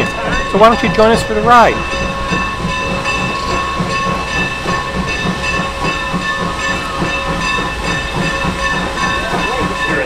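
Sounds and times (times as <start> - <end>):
steam locomotive hissing: 0.0 - 10.0.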